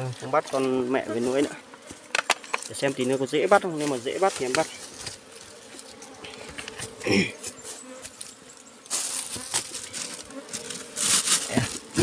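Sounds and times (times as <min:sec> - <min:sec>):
bees buzzing: 0:00.0 - 0:12.0
rustling and scraping: 0:00.2 - 0:12.0.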